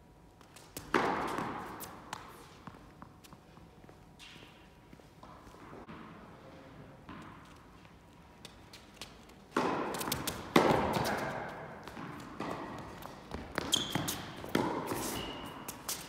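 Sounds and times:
tennis racket hitting ball: 0:00.6 - 0:02.8, 0:08.4 - 0:16.0
shoes squeaking on court: 0:07.1 - 0:16.0.

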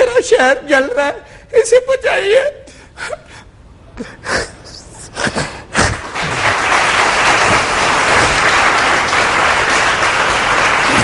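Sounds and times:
audience applause: 0:05.8 - 0:11.0.

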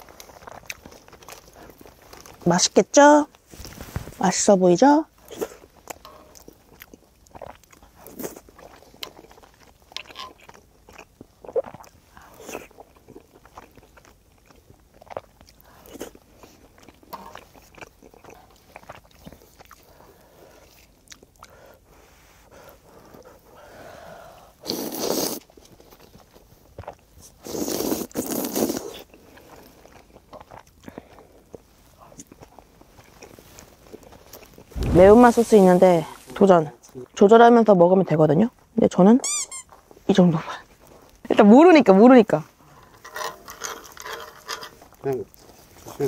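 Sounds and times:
chewing with wet mouth clicks: 0:00.0 - 0:02.4, 0:05.2 - 0:21.8, 0:24.6 - 0:34.7
rushing noises: 0:34.7 - 0:36.2.

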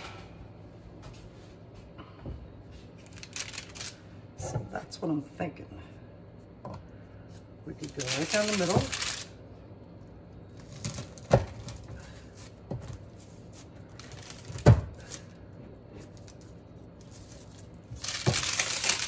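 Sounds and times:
crackling pastry and paper: 0:02.8 - 0:04.2, 0:07.2 - 0:09.4, 0:10.0 - 0:19.0.

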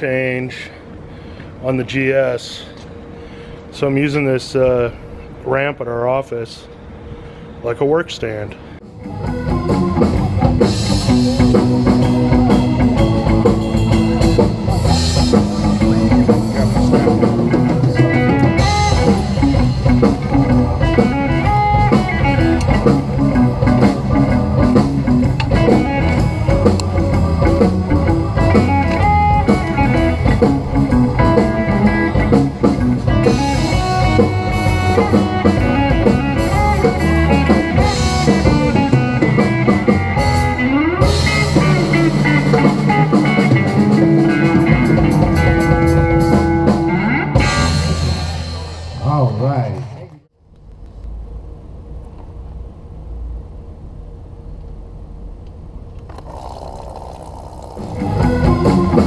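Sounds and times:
music with steady beat: 0:09.0 - 0:48.7, 0:57.9 - 0:59.0.

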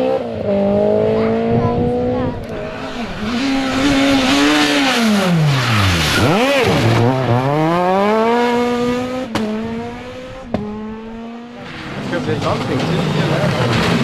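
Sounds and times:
rally car engine revving: 0:00.0 - 0:14.0.

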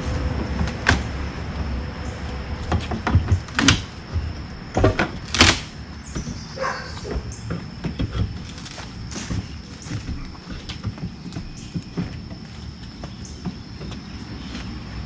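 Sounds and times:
wood creak: 0:02.7 - 0:14.7.

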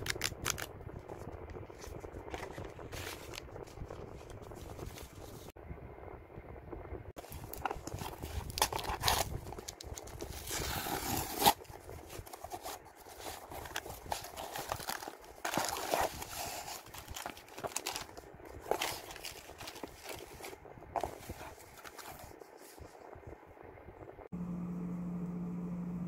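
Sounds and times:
plastic packaging crinkling: 0:00.0 - 0:05.5, 0:07.2 - 0:22.8
cardboard flaps scraping: 0:07.2 - 0:22.8
tape ripping: 0:07.5 - 0:20.3.

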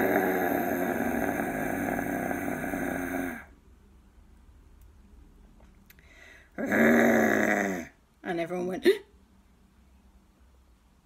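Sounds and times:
lion-like roar: 0:00.0 - 0:03.5, 0:06.6 - 0:08.0.

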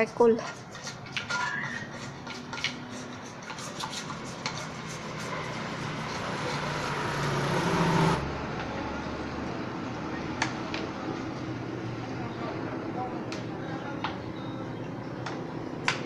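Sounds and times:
road traffic: 0:00.0 - 0:16.0
engine drone: 0:02.7 - 0:13.0.

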